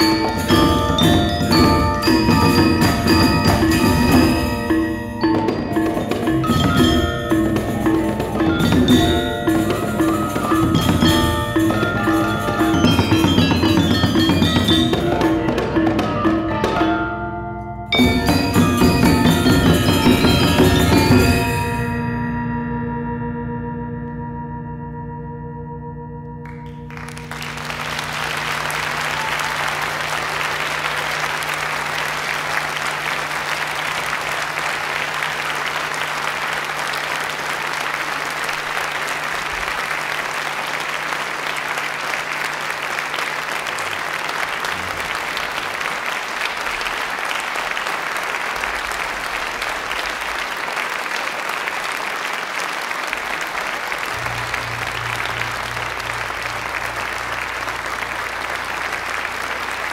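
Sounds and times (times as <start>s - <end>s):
metallophones and gongs ringing: 0.0s - 36.7s
audience applauding: 26.4s - 59.9s.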